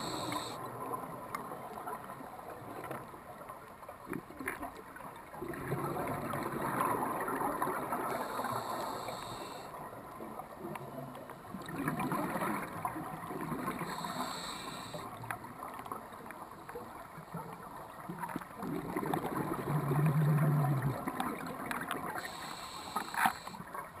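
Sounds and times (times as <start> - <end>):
regulator inhalation hiss: 0.0 - 0.6, 8.1 - 9.8, 13.8 - 15.2, 22.2 - 23.6.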